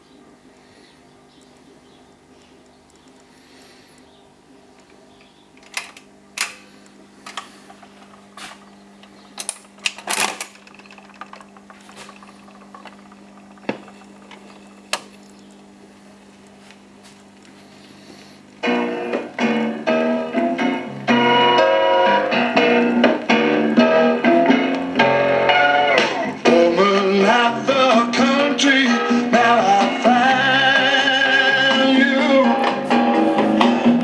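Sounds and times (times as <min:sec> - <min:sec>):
record player hum: 0:00.0 - 0:34.0
mechanical clicks and clunks: 0:04.8 - 0:15.6
music from record player speaker: 0:18.4 - 0:34.0.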